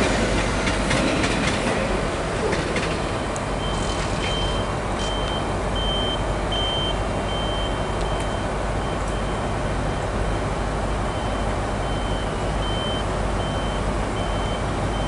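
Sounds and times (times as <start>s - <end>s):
railway station noise: 0.0s - 15.0s
high electronic warning beep: 3.6s - 9.5s, 11.1s - 15.0s.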